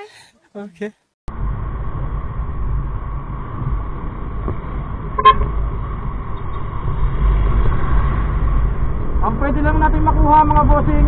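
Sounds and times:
motorcycle engine and wind rumble: 0:01.3 - 0:11.0
vehicle horn toot: 0:05.2 - 0:05.6.

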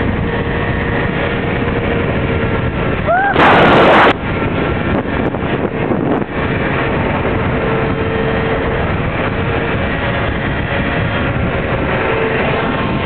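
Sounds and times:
scooter engine cruising: 0:00.0 - 0:13.0
wind rushing over microphone: 0:00.0 - 0:13.0.

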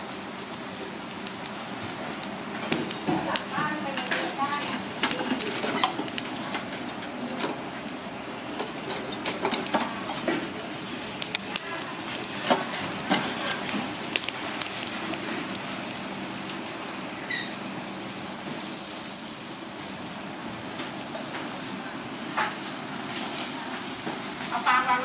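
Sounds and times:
food sizzling with crackles: 0:00.0 - 0:25.0.

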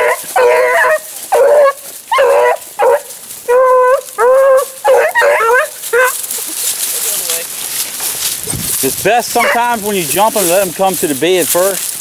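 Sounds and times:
hound baying: 0:00.0 - 0:06.4, 0:09.3 - 0:09.8.

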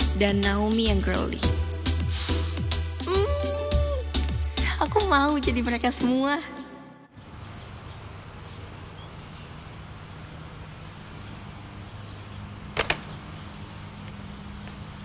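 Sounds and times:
sharp clicks: 0:12.8 - 0:13.2.

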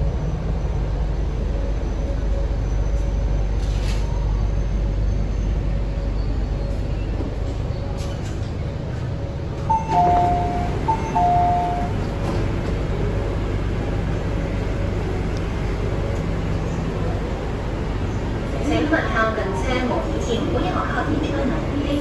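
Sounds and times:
low hum of stopped train: 0:00.0 - 0:22.0
two-tone door chime: 0:09.7 - 0:12.1.

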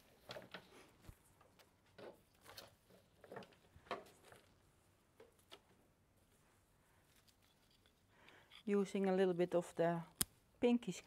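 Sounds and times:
flower stems rustling: 0:05.4 - 0:10.2.

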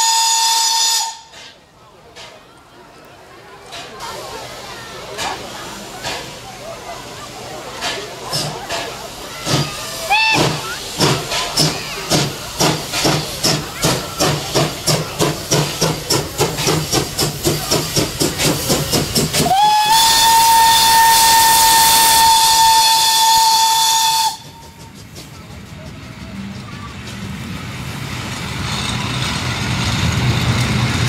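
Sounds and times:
steam whistle: 0:00.0 - 0:01.4, 0:19.4 - 0:24.8
steam locomotive exhaust chuffing: 0:00.0 - 0:31.0.

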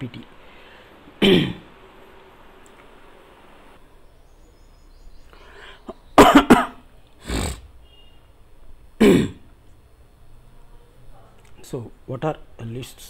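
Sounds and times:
person breathing: 0:00.4 - 0:01.0, 0:05.3 - 0:06.0
person coughing: 0:01.2 - 0:01.7, 0:06.2 - 0:07.6, 0:09.0 - 0:09.5.

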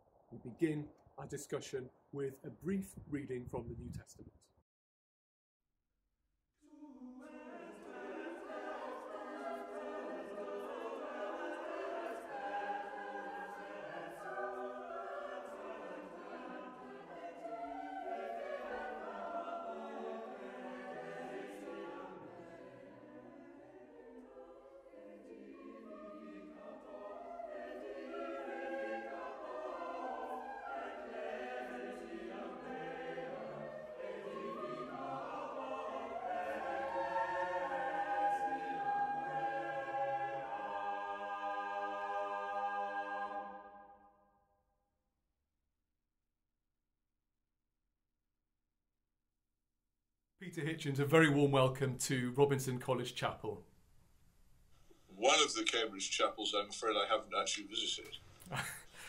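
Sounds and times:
choir singing: 0:06.6 - 0:44.2, 0:55.1 - 0:59.0.

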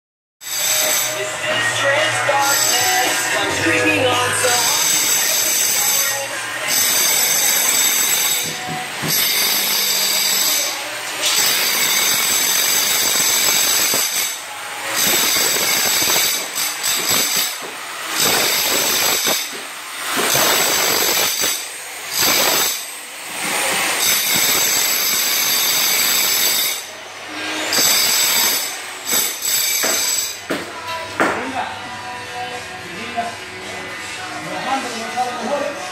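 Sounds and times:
demolition hammer chiselling concrete: 0:11.2 - 0:14.3, 0:14.9 - 0:26.8.

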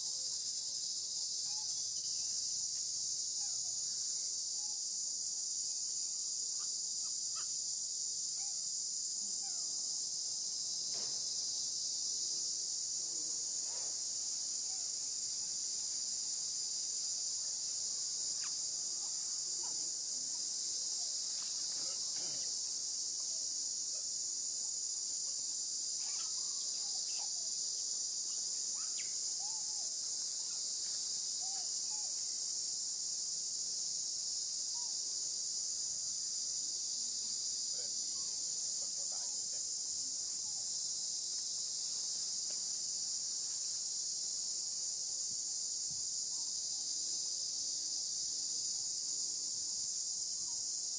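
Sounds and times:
insect chorus drone: 0:00.0 - 0:50.9
faint chirping calls: 0:00.3 - 0:05.0, 0:08.3 - 0:09.9, 0:13.6 - 0:22.6, 0:25.9 - 0:32.4.

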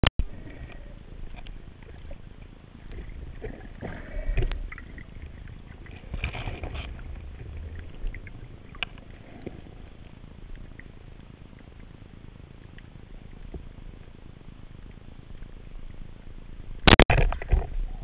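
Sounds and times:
water rushing: 0:00.2 - 0:11.6
underwater clicks and crackles: 0:00.2 - 0:18.0
underwater rumble of moving water: 0:00.2 - 0:18.0.

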